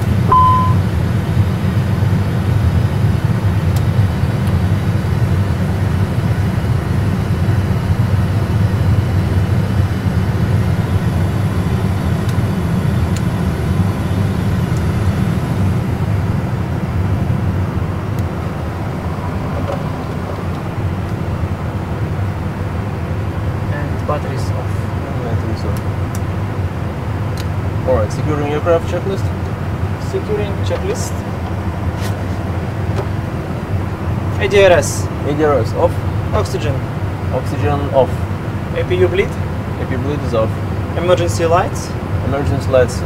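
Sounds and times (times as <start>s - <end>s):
low cockpit rumble: 0.0s - 40.8s
short electronic beep: 0.3s - 0.8s.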